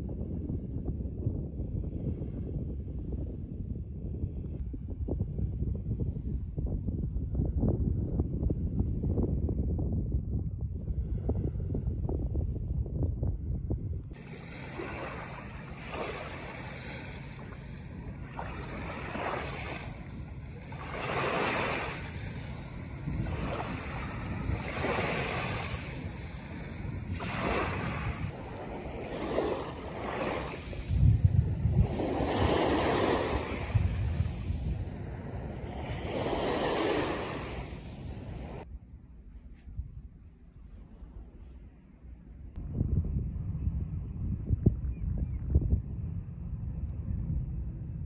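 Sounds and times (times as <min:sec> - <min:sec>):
wind buffeting microphone: 0:00.0 - 0:48.0
waves washing on sandy beach: 0:14.2 - 0:38.6.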